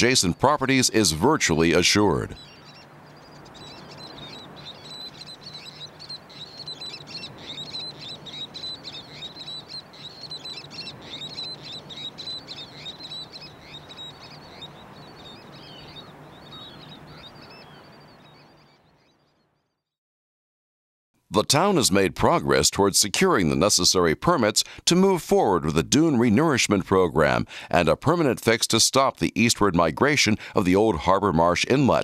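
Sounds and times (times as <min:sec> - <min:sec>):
birds chattering: 0:00.0 - 0:19.4.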